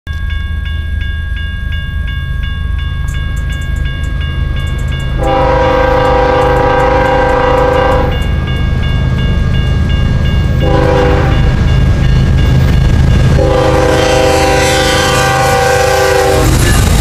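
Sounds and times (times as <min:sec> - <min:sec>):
low rumble of train: 0:00.1 - 0:17.0
railroad crossing bell dinging: 0:00.1 - 0:17.0
locomotive air horn blast: 0:05.2 - 0:08.2, 0:10.6 - 0:11.4, 0:13.4 - 0:16.6.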